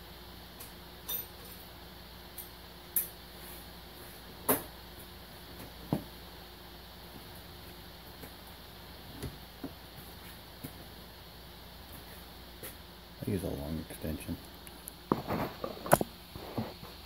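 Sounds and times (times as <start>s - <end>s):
faint steady hum: 0.0s - 17.0s
metal tools clinking: 1.1s - 1.6s.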